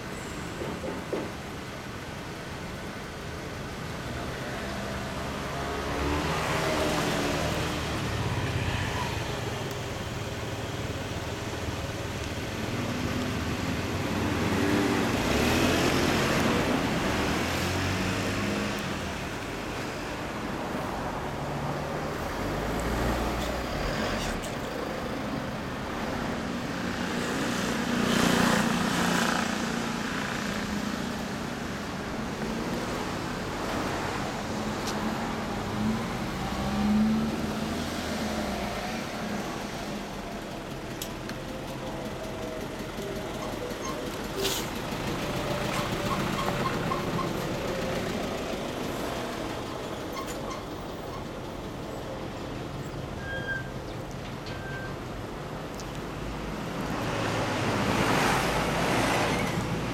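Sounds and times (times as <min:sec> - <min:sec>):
motorcycle engine idling and revving: 0:22.7 - 0:53.3.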